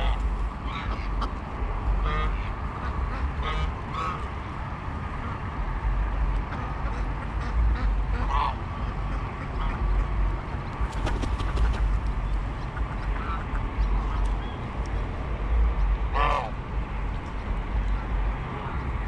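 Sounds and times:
geese honking: 0.0 - 1.4, 2.0 - 4.5, 16.1 - 16.6
steady low rumble: 0.0 - 19.0.

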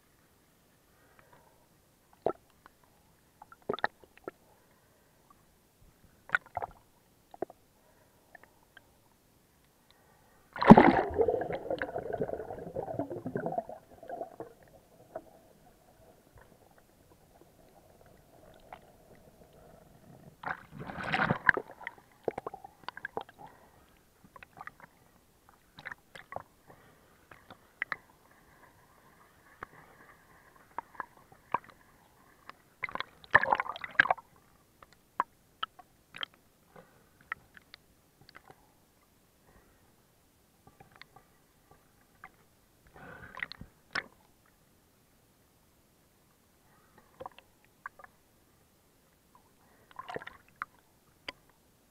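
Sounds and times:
muffled water sloshing underwater: 10.0 - 34.6.

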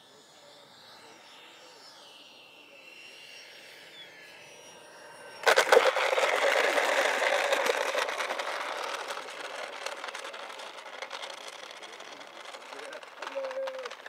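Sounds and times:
electric ducted fan whining: 3.4 - 14.0
model jet rushing past: 5.4 - 14.0
wheels clattering over asphalt: 5.4 - 14.0.

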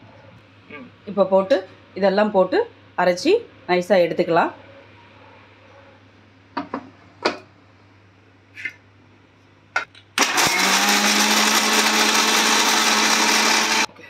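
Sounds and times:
mixer grinder motor running: 10.2 - 13.9.

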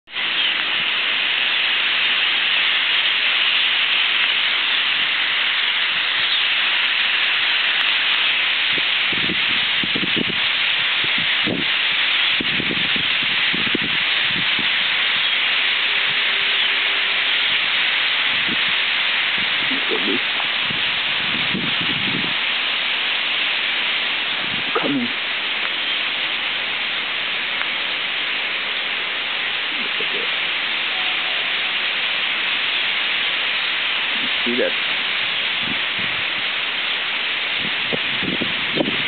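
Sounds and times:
starlings chattering: 0.1 - 1.8, 4.5 - 8.4, 14.8 - 17.8, 19.3 - 20.8, 24.2 - 26.2, 28.6 - 33.4, 34.0 - 35.7.

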